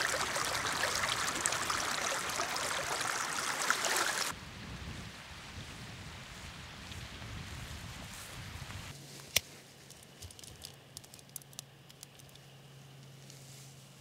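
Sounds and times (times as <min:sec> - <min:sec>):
stream: 0:00.0 - 0:04.4
wind: 0:00.0 - 0:14.0.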